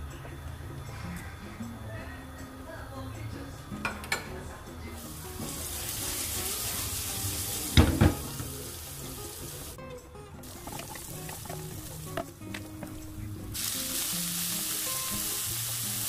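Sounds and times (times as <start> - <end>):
garlic sizzling in oil: 5.0 - 9.8, 10.4 - 16.0
wok knocking on burner grate: 7.7 - 8.6, 10.5 - 13.2
metal spoon tapping pan: 10.5 - 13.2.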